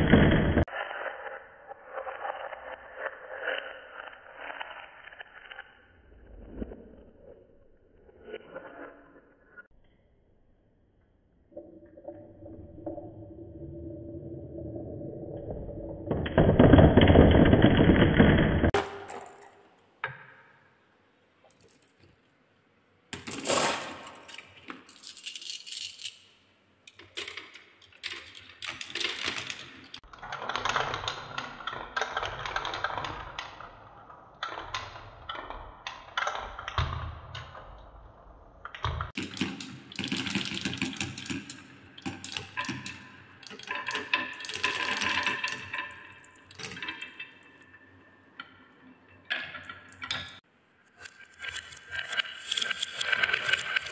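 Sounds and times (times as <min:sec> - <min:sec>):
marbles rattling down wooden tracks: 0:27.1 - 0:30.1, 0:39.1 - 0:47.7, 0:51.3 - 0:53.9.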